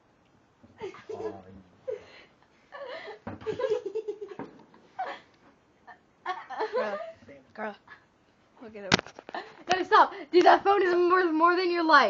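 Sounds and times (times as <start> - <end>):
people laughing: 6.3 - 7.2.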